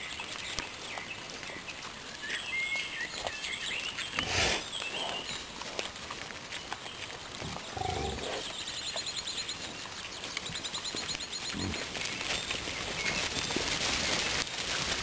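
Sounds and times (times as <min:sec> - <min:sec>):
rustle of grass: 0:00.0 - 0:15.0
wild boars grunting: 0:04.2 - 0:05.4, 0:07.3 - 0:08.6, 0:11.5 - 0:12.1.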